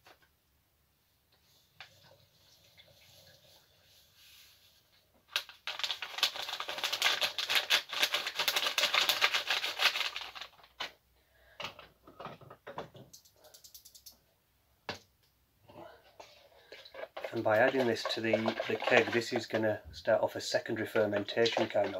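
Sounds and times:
sugar pouring into water: 5.4s - 10.6s, 16.6s - 21.9s.

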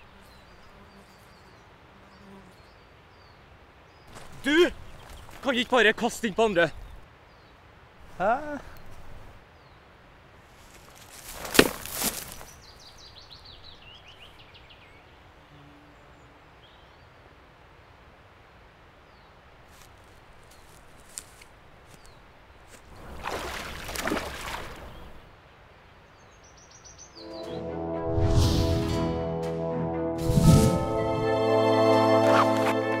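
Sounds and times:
wind: 0.0s - 33.0s
flowing river water: 22.5s - 26.0s
rushing swish: 28.1s - 29.2s, 30.2s - 31.1s
sharp snap and swish: 30.2s - 31.0s.

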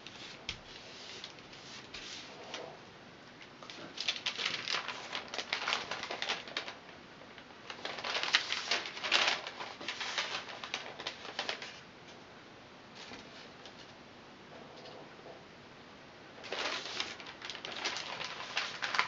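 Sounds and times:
straw sheet rustling and crackling: 3.9s - 6.8s, 7.7s - 11.8s, 16.4s - 19.0s.

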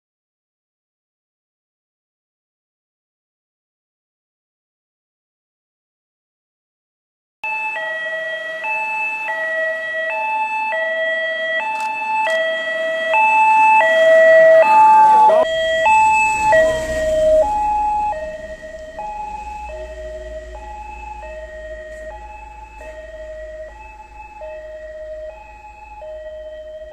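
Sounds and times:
two-tone police siren: 7.4s - 26.9s
low rumble: 14.4s - 26.9s.

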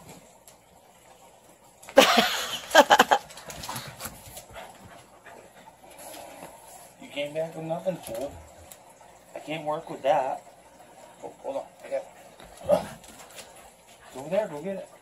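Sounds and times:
dogs scuffling: 2.7s - 8.8s, 11.9s - 14.9s
dogs playing noise: 3.1s - 7.0s, 12.1s - 14.4s.

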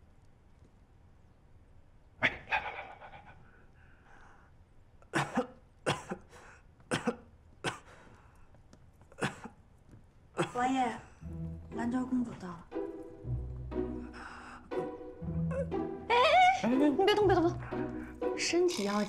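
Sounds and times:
man coughing: 5.1s - 6.3s, 6.9s - 8.0s, 9.2s - 9.6s, 10.4s - 10.6s.

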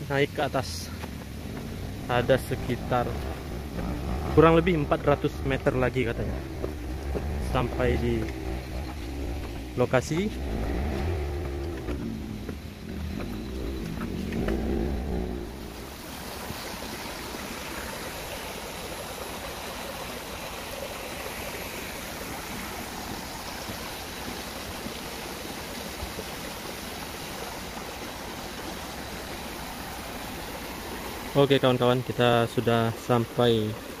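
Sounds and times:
forest stream rushing: 0.0s - 34.0s
low rumble: 0.6s - 16.0s.

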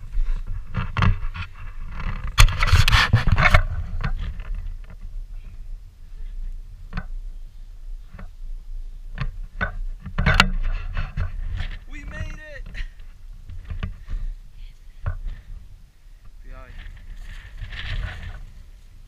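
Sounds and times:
camera rubbing against clothing: 0.0s - 5.6s, 9.1s - 15.6s, 16.5s - 19.0s
wind buffeting microphone: 0.0s - 19.0s.

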